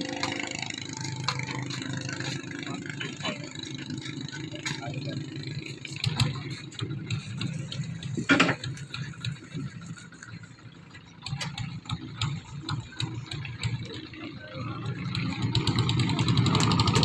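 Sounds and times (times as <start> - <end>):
low engine hum: 0.0 - 17.0.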